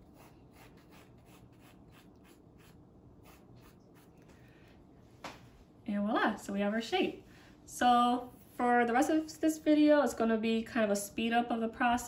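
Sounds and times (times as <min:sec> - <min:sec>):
pencil scratching on paper: 0:00.0 - 0:04.2.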